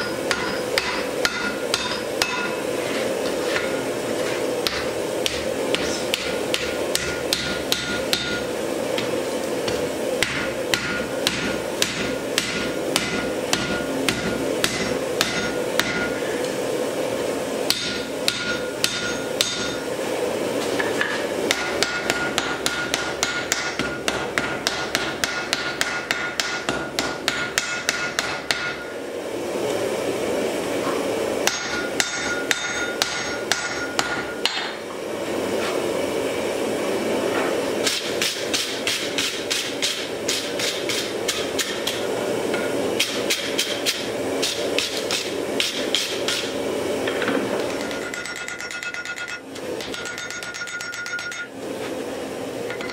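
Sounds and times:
hammer striking iron on anvil: 0:00.0 - 0:02.7, 0:04.6 - 0:09.1, 0:09.7 - 0:16.2, 0:17.7 - 0:19.8, 0:20.8 - 0:28.9, 0:31.4 - 0:34.8, 0:37.8 - 0:51.6, 0:52.7 - 0:52.9
steady hum: 0:00.0 - 0:52.9.

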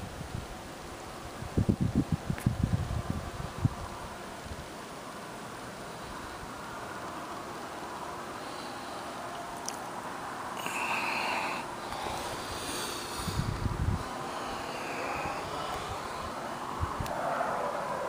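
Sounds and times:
wind: 0:00.0 - 0:18.0
wind buffeting microphone: 0:01.2 - 0:04.7, 0:13.2 - 0:18.0.

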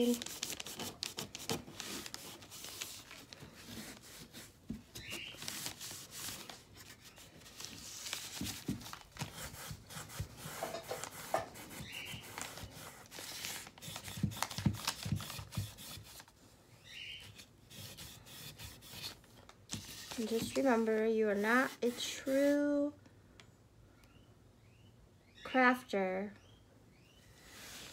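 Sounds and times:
knocks and scrapes of wooden frame: 0:10.0 - 0:12.1.

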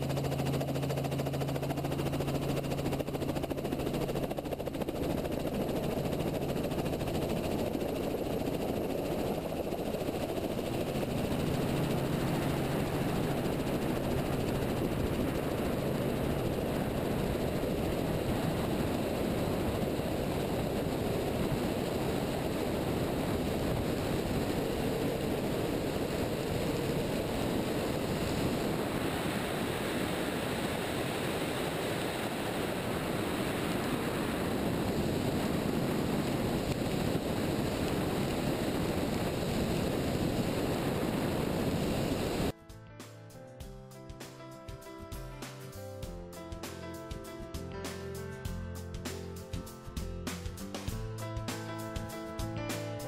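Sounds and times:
helicopter taking off: 0:00.0 - 0:42.6
wind on microphone: 0:06.7 - 0:42.5.

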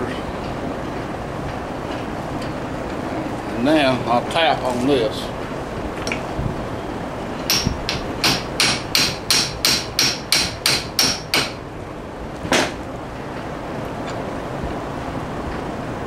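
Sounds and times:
hammer striking steel shaft: 0:07.5 - 0:11.6.

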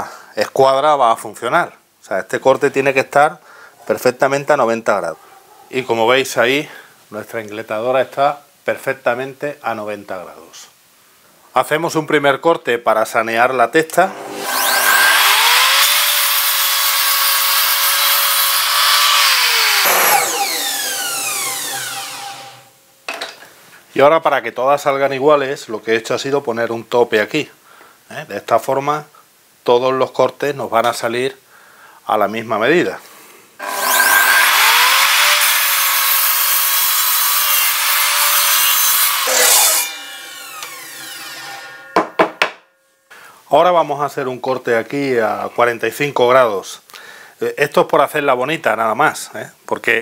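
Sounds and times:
mitre saw cutting board: 0:14.1 - 0:22.7, 0:33.6 - 0:42.6
saw blade spinning down: 0:14.1 - 0:22.7, 0:33.6 - 0:42.1.

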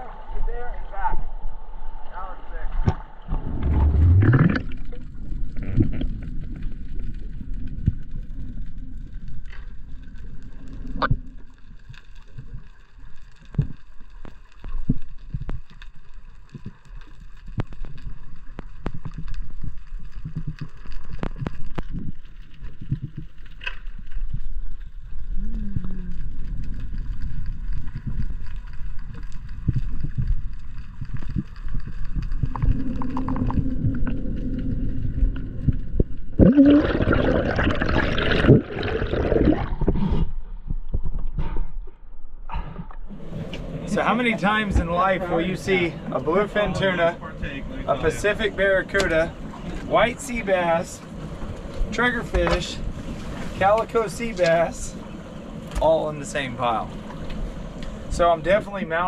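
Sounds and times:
underwater rumble of moving water: 0:00.0 - 0:59.0
sharp clicks and crackles: 0:02.8 - 0:41.6, 0:47.4 - 0:49.9, 0:51.1 - 0:58.2.

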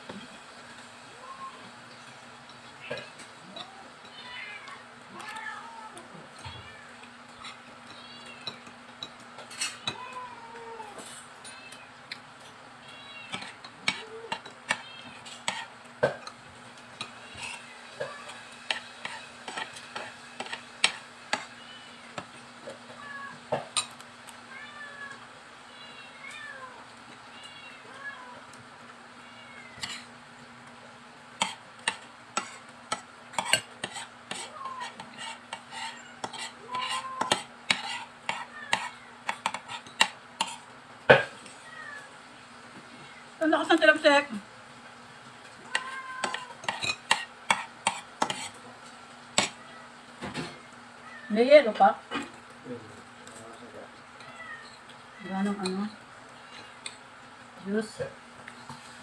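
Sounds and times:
cat mewing: 0:02.8 - 0:07.0, 0:24.4 - 0:28.6, 0:35.7 - 0:39.5, 0:41.1 - 0:42.2, 0:45.6 - 0:46.9, 0:54.2 - 0:55.3
cutlery scraping on ceramic plate: 0:07.3 - 0:10.0, 0:13.3 - 0:16.4, 0:17.0 - 0:21.5, 0:29.8 - 0:30.1, 0:31.4 - 0:41.3, 0:45.7 - 0:48.6.

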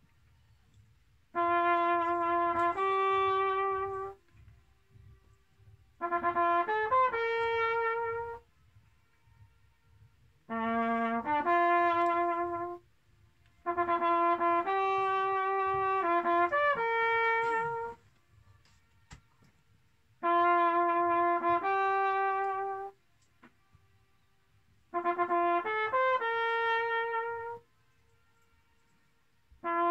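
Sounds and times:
trumpet playing melodic phrases: 0:01.2 - 0:04.4, 0:05.9 - 0:09.1, 0:10.4 - 0:19.4, 0:20.2 - 0:23.1, 0:24.8 - 0:29.9
faint echo of horn notes: 0:01.3 - 0:05.3, 0:13.6 - 0:18.1.

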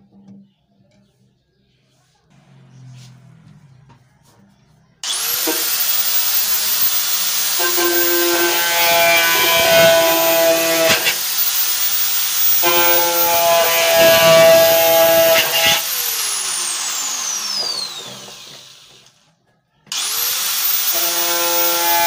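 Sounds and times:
high-pitched squeal cutting plastic: 0:05.0 - 0:18.7, 0:19.9 - 0:22.0
angle grinder spinning: 0:05.0 - 0:19.2, 0:19.9 - 0:22.0.

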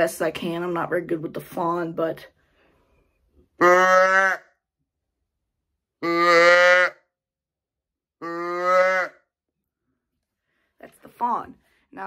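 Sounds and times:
deer call bleats: 0:03.6 - 0:04.5, 0:06.0 - 0:07.0, 0:08.2 - 0:09.2.

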